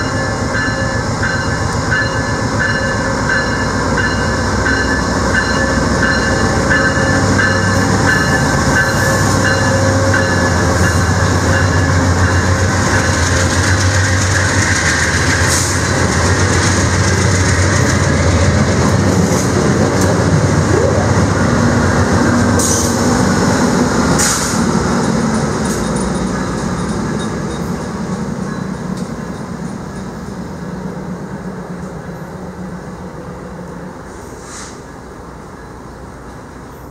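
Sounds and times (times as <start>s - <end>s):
train wheels clicking over rail joints: 0.0s - 20.4s, 24.0s - 30.5s
diesel locomotive engine humming: 0.0s - 36.9s.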